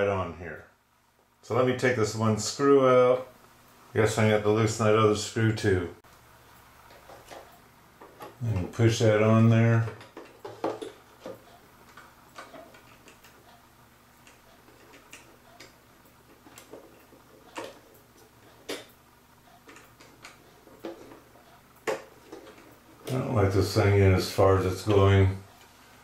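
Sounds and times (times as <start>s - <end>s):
faint clock ticking: 6.0s - 26.0s
small clicks of clock hands: 9.9s - 23.3s, 24.3s - 25.8s.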